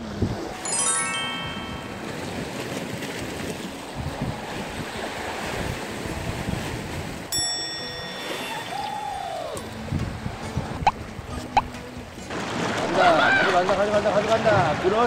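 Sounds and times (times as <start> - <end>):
wind on microphone: 0.0 - 0.6, 2.0 - 7.4, 9.1 - 12.1
bright bell-like chime: 0.6 - 2.3, 7.3 - 8.8
waves washing against rocks: 2.0 - 7.4, 12.3 - 15.0.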